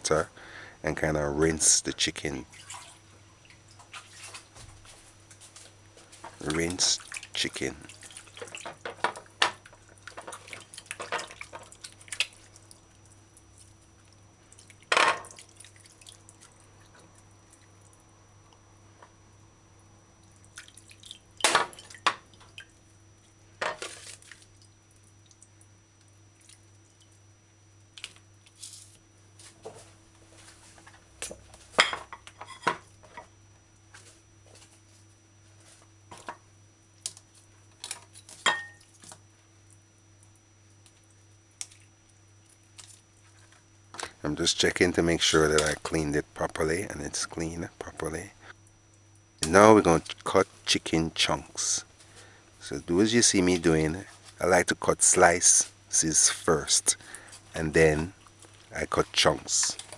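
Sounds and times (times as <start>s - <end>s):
water splashing and dripping: 2.5s - 4.4s, 6.8s - 8.8s, 9.6s - 17.8s, 20.2s - 22.8s.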